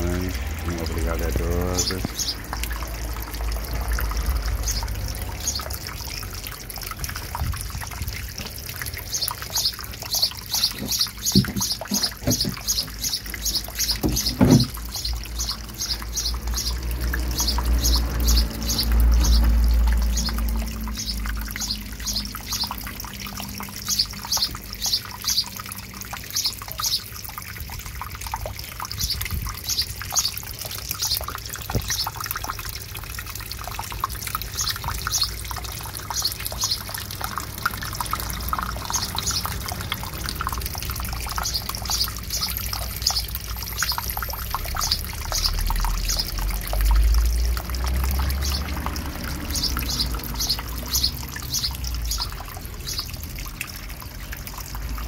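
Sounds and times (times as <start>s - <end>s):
fountain water splashing: 0.0s - 55.0s
bird chirping: 9.1s - 22.8s, 49.5s - 53.1s
dull knocks: 10.8s - 12.6s, 14.0s - 14.8s.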